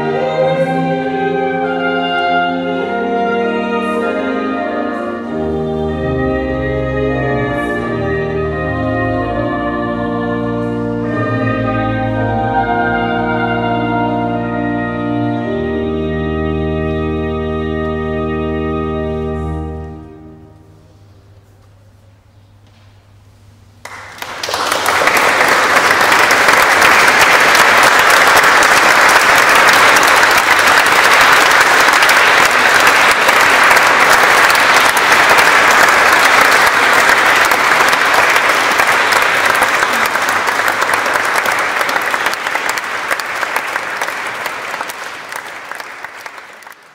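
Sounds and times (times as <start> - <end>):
audience applause: 23.8 - 46.9.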